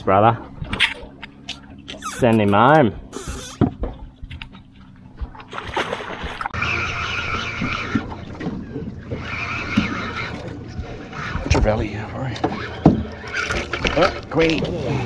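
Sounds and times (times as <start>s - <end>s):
fishing reel drag buzzing: 3.1s - 3.6s.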